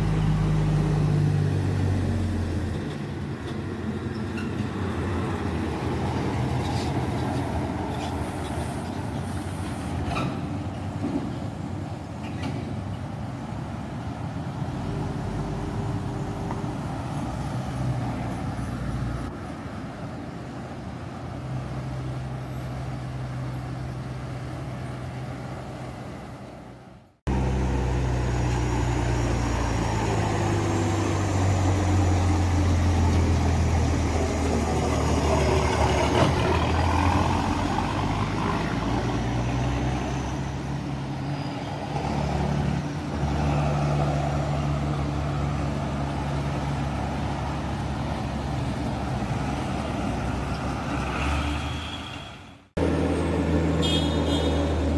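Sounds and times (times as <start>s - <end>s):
diesel truck engine droning: 0.0s - 6.4s, 27.3s - 41.1s
traffic engine noise: 0.0s - 54.9s.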